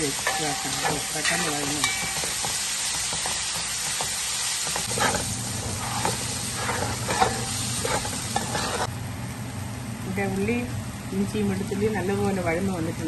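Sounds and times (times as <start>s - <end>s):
spatula scraping a pan: 0.0s - 8.9s
vegetables sizzling in hot oil: 0.0s - 13.0s.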